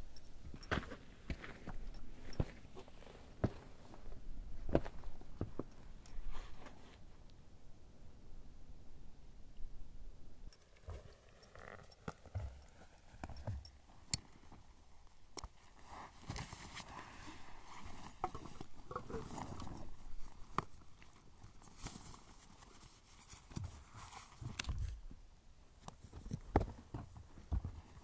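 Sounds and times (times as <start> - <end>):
footsteps on rock: 0.4 - 5.9
backpack and pad rustling: 15.6 - 24.6.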